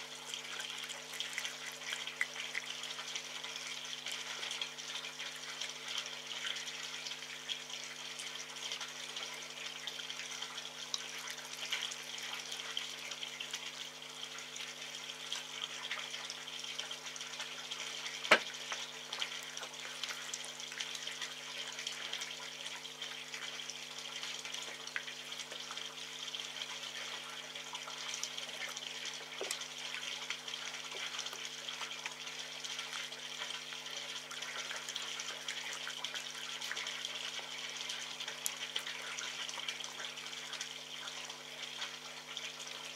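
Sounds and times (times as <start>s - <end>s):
fox chewing and lapping meat: 0.6s - 3.5s.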